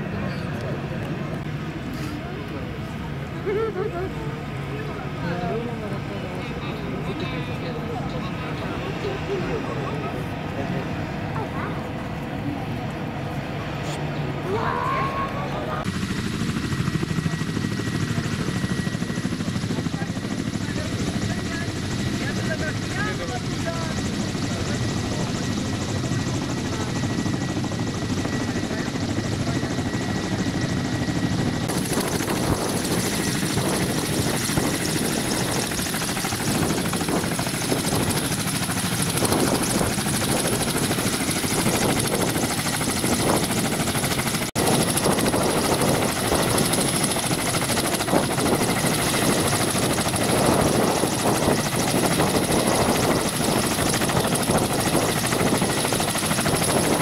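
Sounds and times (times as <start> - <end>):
helicopter engines whining: 0.0 - 57.0
helicopter rotors beating: 0.0 - 57.0.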